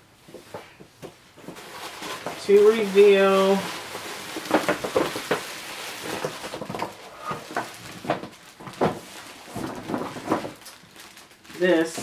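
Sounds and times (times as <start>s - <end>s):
plastic wrapping crinkling: 0.2s - 12.0s.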